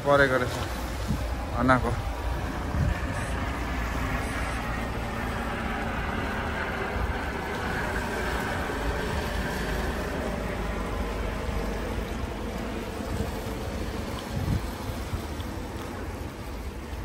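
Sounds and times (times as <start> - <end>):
continuous noise wash: 0.0 - 17.0
wind rumbling on microphone: 0.0 - 17.0.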